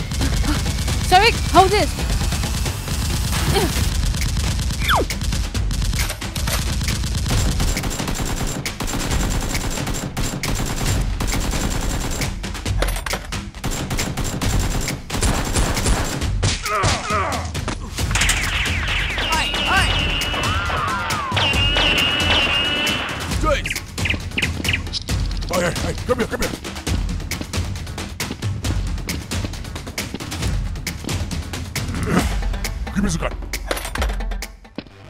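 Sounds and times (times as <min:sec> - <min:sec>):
rapid automatic gunfire: 0:00.0 - 0:12.4, 0:13.6 - 0:16.3.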